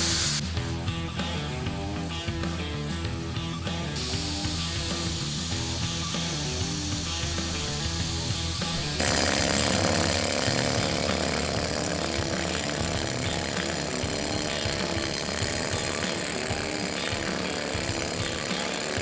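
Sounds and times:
background music: 0:00.0 - 0:19.0
power tool grinding steel: 0:03.9 - 0:19.0.

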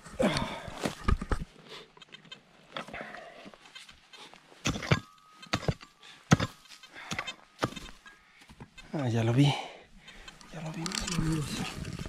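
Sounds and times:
faint steady beep: 0:04.8 - 0:09.0
hand rake scraping stony soil: 0:10.1 - 0:12.0.

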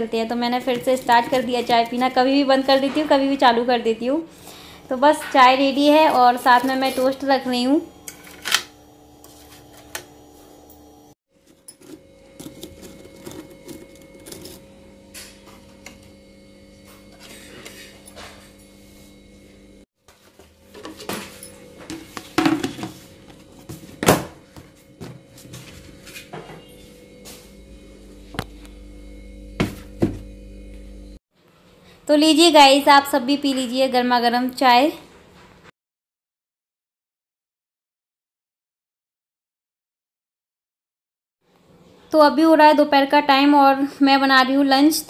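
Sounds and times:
steady low hum: 0:20.7 - 0:31.2.

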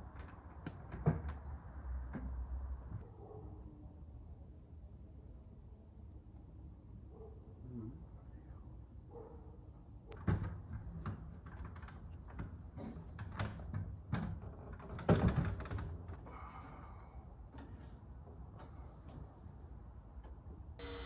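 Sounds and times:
wood knocking and clattering: 0:10.2 - 0:16.2.

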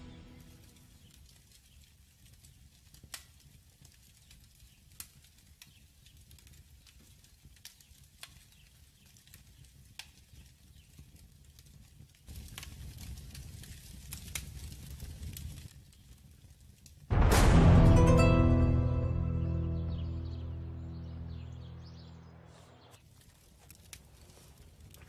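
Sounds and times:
crackling fire: 0:00.0 - 0:18.8, 0:22.2 - 0:25.0
low rumble: 0:17.1 - 0:22.9.

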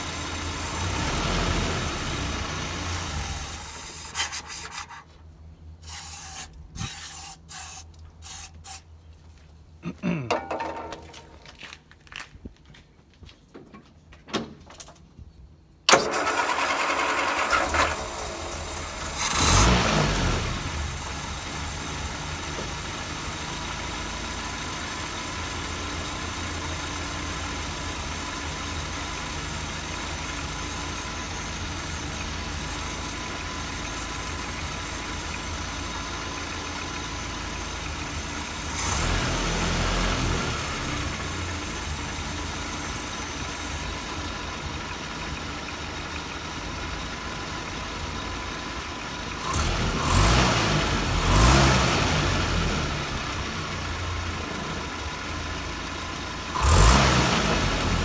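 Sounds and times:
petrol engine idling and revving: 0:00.0 - 0:04.2, 0:15.9 - 0:58.0.

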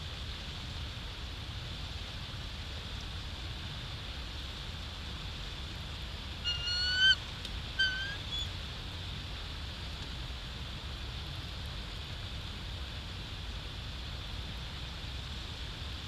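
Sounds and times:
background hiss: 0:00.0 - 0:16.0
eagle calling: 0:06.4 - 0:08.5.

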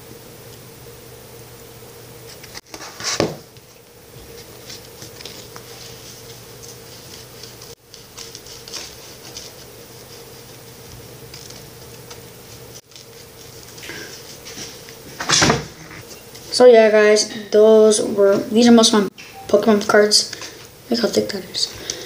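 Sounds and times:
faint hum: 0:00.0 - 0:22.0
cards flicking and rustling: 0:02.3 - 0:16.5.

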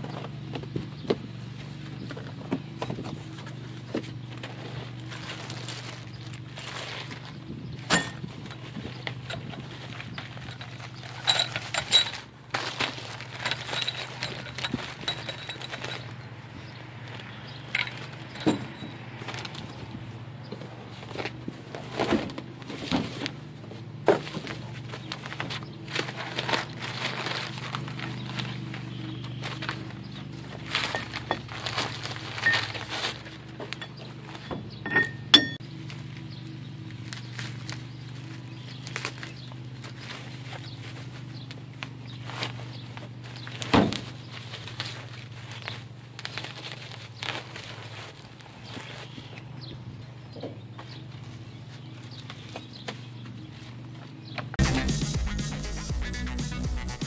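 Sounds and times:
paper rustling and crinkling: 0:00.0 - 0:34.7, 0:35.8 - 0:49.5
metal parts clinking: 0:04.8 - 0:16.3, 0:17.2 - 0:19.7, 0:29.5 - 0:35.6.

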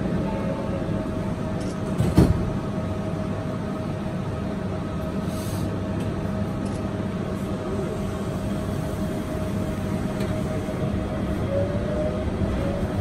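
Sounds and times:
train cabin rumble: 0:07.2 - 0:13.0.

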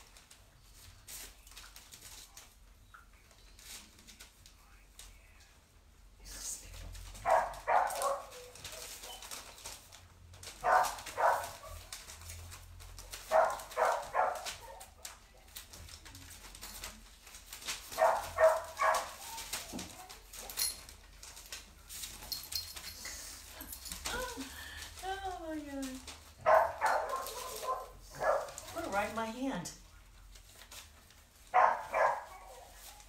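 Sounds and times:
dog barking: 0:07.2 - 0:08.4, 0:10.6 - 0:11.8, 0:13.2 - 0:15.1, 0:17.9 - 0:19.2, 0:26.4 - 0:28.7, 0:31.5 - 0:32.8.

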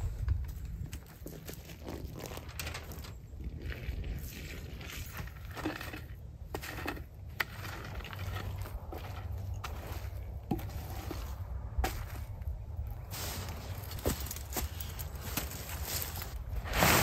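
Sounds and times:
stick scraping through wet ash: 0:03.9 - 0:12.4.

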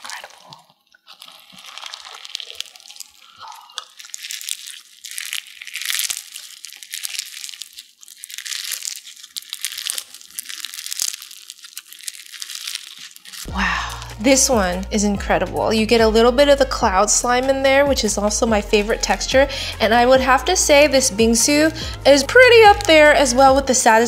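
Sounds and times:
crunchy slime being squeezed: 0:00.0 - 0:14.9, 0:21.0 - 0:23.8.

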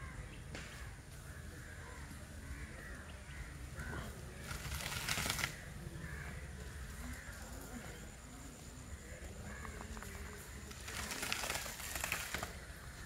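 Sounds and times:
crows cawing: 0:00.0 - 0:04.7, 0:05.5 - 0:07.6, 0:08.9 - 0:10.8.

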